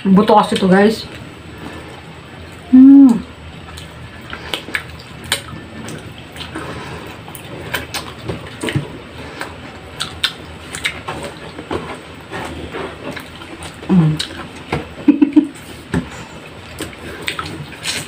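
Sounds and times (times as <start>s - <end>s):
wet chewing: 0.4s - 18.0s
lip smacking: 3.0s - 11.5s, 12.4s - 14.7s, 16.4s - 18.0s.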